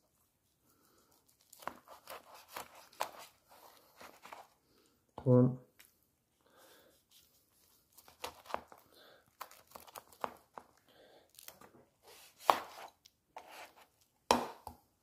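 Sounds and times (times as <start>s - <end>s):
knife cutting on cutting board: 1.6s - 3.3s, 12.0s - 14.6s.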